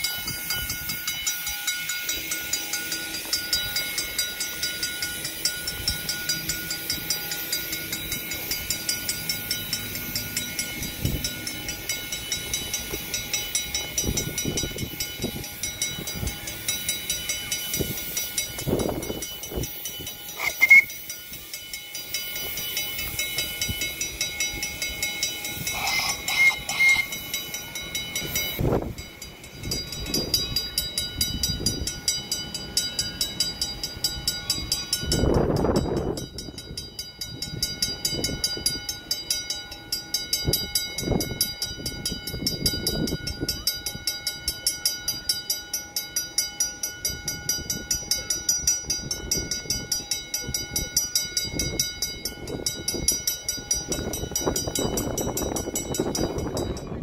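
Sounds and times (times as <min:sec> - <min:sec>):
sharp high squeal: 0:00.0 - 0:30.7
regular ticking: 0:00.0 - 0:56.9
rail vehicle running on track: 0:00.0 - 0:57.0
steady high-pitched tones: 0:00.0 - 0:57.0.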